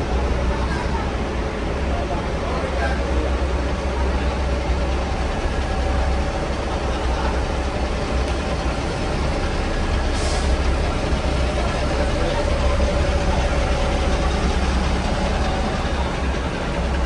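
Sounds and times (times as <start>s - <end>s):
bus diesel engine running: 0.0s - 17.0s
buses idling: 0.0s - 17.0s
short hiss: 10.1s - 10.6s.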